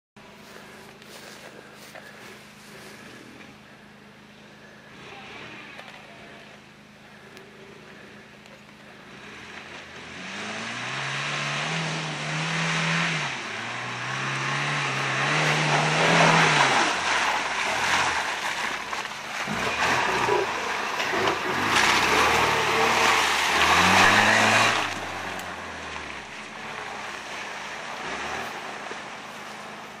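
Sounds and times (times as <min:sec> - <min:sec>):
truck engine revving hard: 0:09.0 - 0:30.0
tyres spinning in mud: 0:13.8 - 0:30.0
mud spraying: 0:14.5 - 0:29.9.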